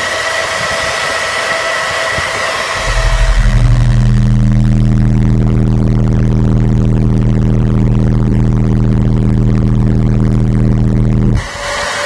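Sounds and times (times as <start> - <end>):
loud bass tone from subwoofers: 2.8 - 11.5.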